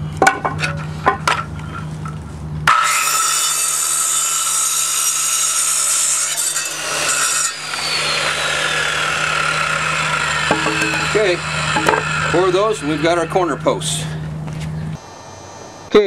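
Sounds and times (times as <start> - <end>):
circular saw cutting wood: 2.6 - 14.3
saw blade whine winding down: 2.7 - 16.0.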